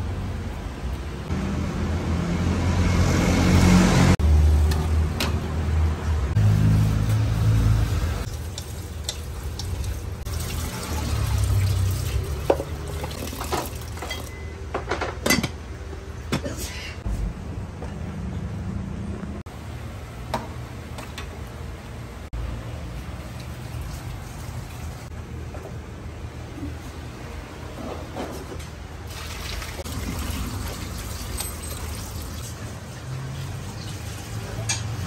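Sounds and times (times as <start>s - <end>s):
tap water running into pot: 8.3s - 14.3s, 29.1s - 32.6s
metal pot and lid clinking: 13.0s - 15.6s.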